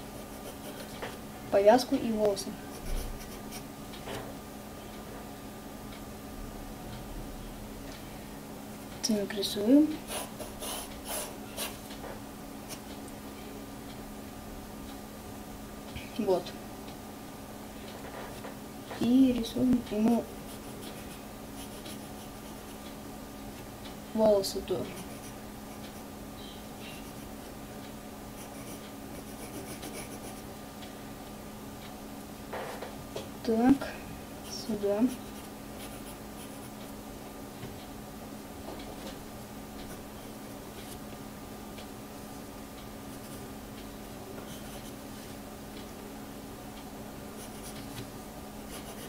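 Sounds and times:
pencil scratching on paper: 0:00.0 - 0:00.9, 0:02.7 - 0:03.6, 0:10.1 - 0:11.8, 0:20.4 - 0:22.8, 0:24.8 - 0:26.1, 0:28.4 - 0:30.5, 0:35.1 - 0:36.8, 0:43.1 - 0:43.4, 0:44.4 - 0:45.0, 0:47.4 - 0:48.0, 0:48.7 - 0:49.0
steady low hum: 0:00.0 - 0:49.0.

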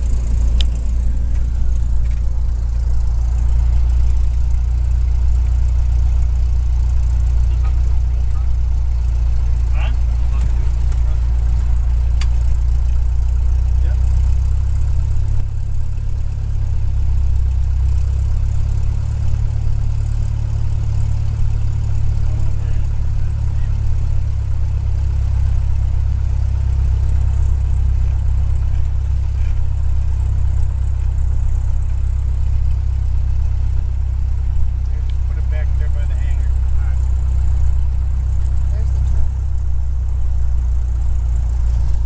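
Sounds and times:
propeller plane engine droning: 0:00.0 - 0:42.0.

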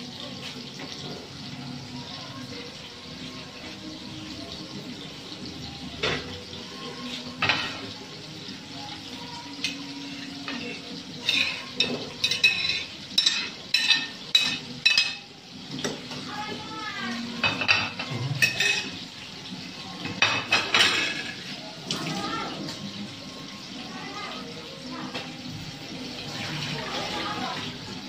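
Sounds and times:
metal bowl clinking against pot: 0:11.2 - 0:16.0, 0:17.4 - 0:19.0.

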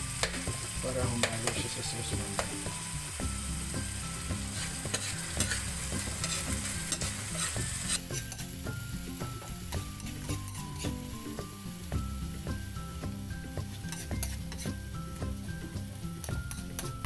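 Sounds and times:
fish frying in oil: 0:00.0 - 0:17.0
utensil scraping pan: 0:04.4 - 0:08.6, 0:10.0 - 0:11.1, 0:13.7 - 0:14.8.

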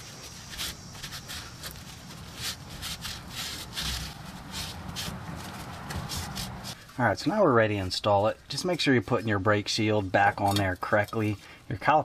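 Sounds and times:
towel wiping swishes: 0:00.0 - 0:06.8.

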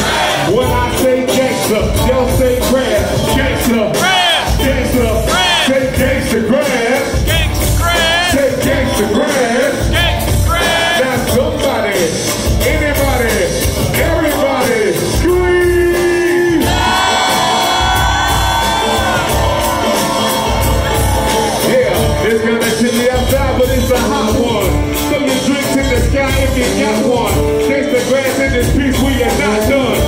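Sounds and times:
crowd shouting and whooping: 0:00.0 - 0:00.8, 0:07.2 - 0:08.6, 0:09.9 - 0:11.2, 0:15.6 - 0:22.2
band playing over a beat: 0:00.0 - 0:30.0.

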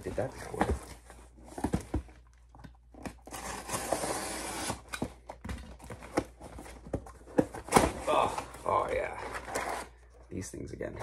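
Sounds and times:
tape and cardboard tearing: 0:03.0 - 0:05.1.

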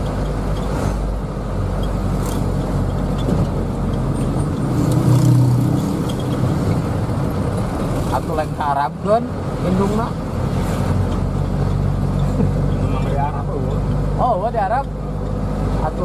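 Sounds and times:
minibus engine running: 0:00.0 - 0:16.0
road noise: 0:00.0 - 0:16.0.

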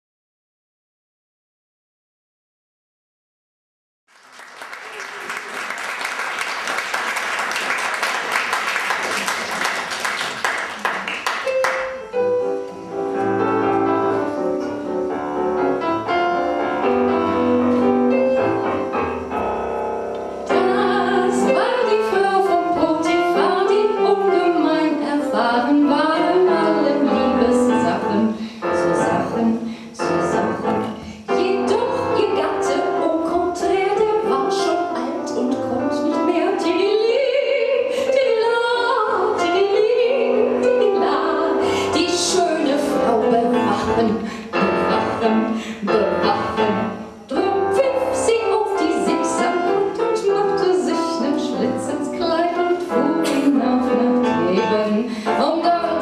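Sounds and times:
audience applause: 0:04.1 - 0:12.0
solo piano: 0:11.2 - 0:56.0
woman singing with piano: 0:20.5 - 0:56.0.

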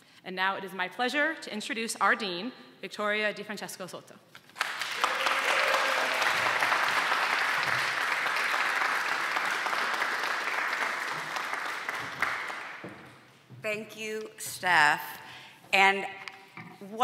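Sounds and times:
audience applauding: 0:04.6 - 0:13.1.

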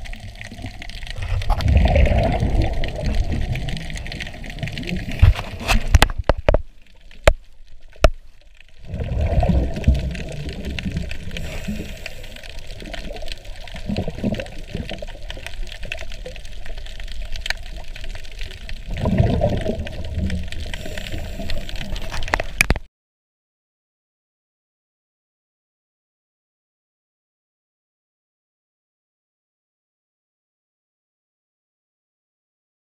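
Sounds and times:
scuba exhalation bubbles gurgling: 0:00.0 - 0:06.6, 0:08.7 - 0:22.8
steady water hiss: 0:00.0 - 0:22.6.

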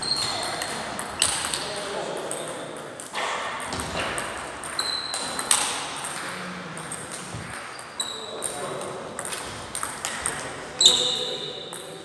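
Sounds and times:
ping pong ball hitting rackets: 0:00.0 - 0:12.0
ping pong ball bouncing on table: 0:00.1 - 0:07.5, 0:08.4 - 0:10.5.

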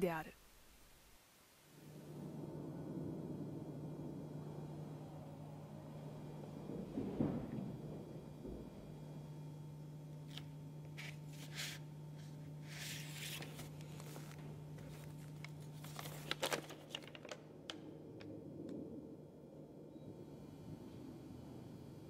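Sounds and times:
paper rustling and crinkling: 0:10.3 - 0:17.9
sharp paper crackles: 0:10.3 - 0:17.9.

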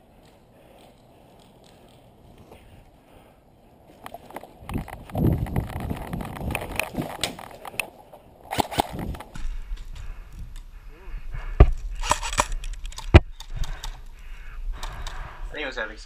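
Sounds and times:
wind rumble: 0:03.7 - 0:15.6
camera handling noise: 0:04.0 - 0:10.1, 0:11.6 - 0:14.1.

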